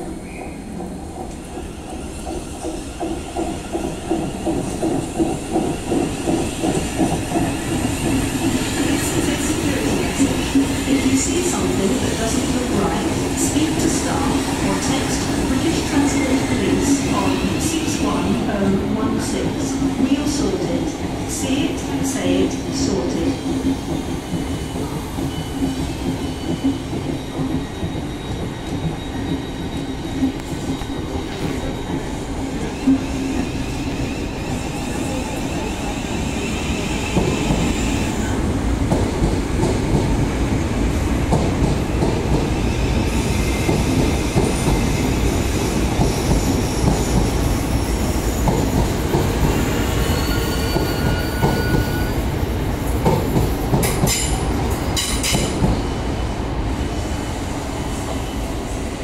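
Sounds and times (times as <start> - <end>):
train wheels rumbling on rails: 0.0 - 59.0
high-pitched train squealing: 21.5 - 38.4, 42.5 - 52.6.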